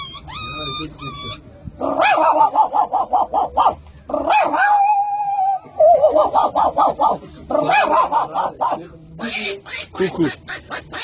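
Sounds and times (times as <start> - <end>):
man imitating dog yips: 0.0 - 7.1.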